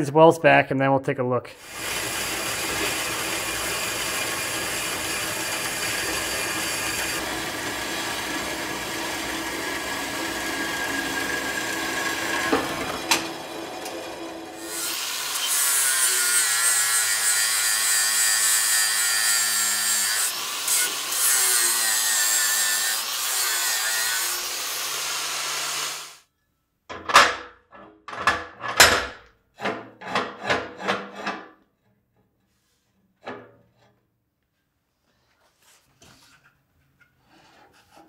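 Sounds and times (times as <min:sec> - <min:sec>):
angle grinder grinding steel: 0:01.6 - 0:26.2.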